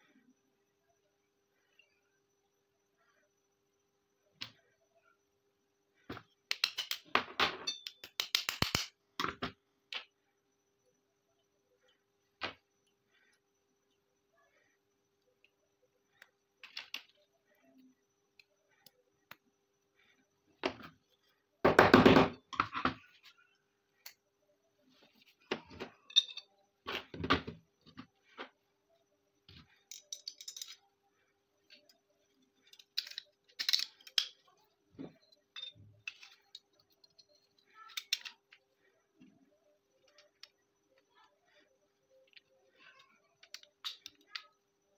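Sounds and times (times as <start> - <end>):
small steel parts clinking: 6.5 - 9.0, 25.9 - 26.6, 29.6 - 31.0, 31.6 - 38.7, 42.2 - 44.6.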